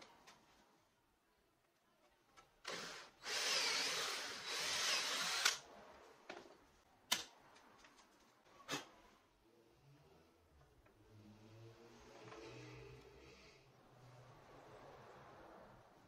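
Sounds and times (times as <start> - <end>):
cordless drill boring wood: 2.6 - 5.6.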